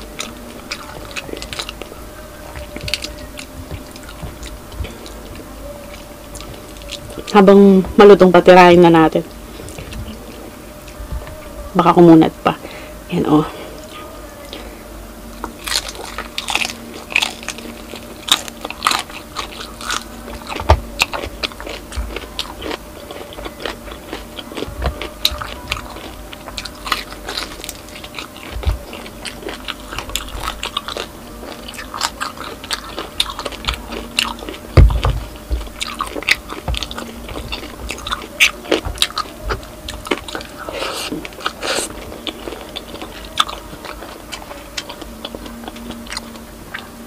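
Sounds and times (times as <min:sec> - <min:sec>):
crunchy biting and chewing: 0:00.0 - 0:07.7, 0:15.3 - 0:47.0
low thumps: 0:34.7 - 0:35.8.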